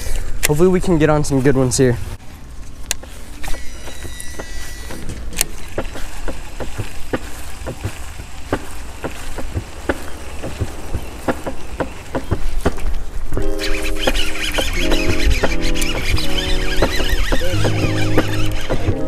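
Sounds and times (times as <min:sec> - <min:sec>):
fishing reel spool whine: 0:03.4 - 0:06.2, 0:13.6 - 0:19.0
wind rumbling on microphone: 0:05.1 - 0:19.0
fishing reel clicking: 0:13.6 - 0:19.0.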